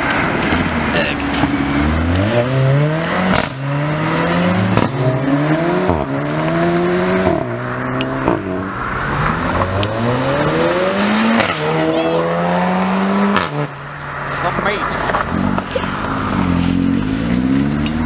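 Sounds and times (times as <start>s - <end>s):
exhaust cracks on upshifts: 0.0s - 11.9s, 12.8s - 18.0s
car engines accelerating: 0.0s - 18.0s.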